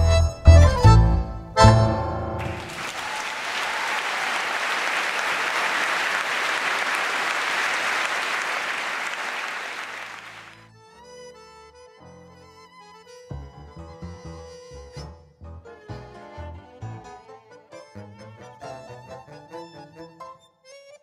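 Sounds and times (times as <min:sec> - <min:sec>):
audience applauding: 0:02.4 - 0:10.7.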